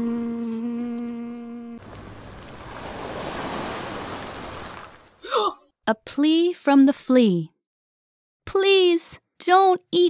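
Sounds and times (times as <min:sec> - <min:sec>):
cartoon bees buzzing: 0:00.0 - 0:01.8
sea waves washing: 0:01.8 - 0:05.2.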